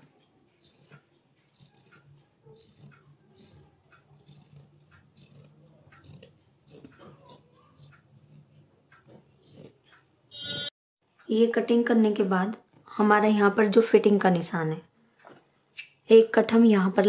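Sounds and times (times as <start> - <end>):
shears snipping fabric: 0.0 - 10.0.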